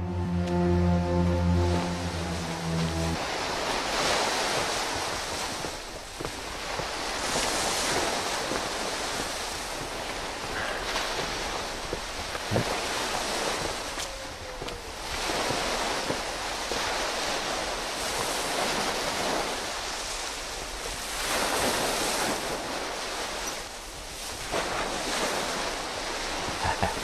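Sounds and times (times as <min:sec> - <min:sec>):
sea surf washing in: 0:00.0 - 0:14.0
wind: 0:00.0 - 0:27.0.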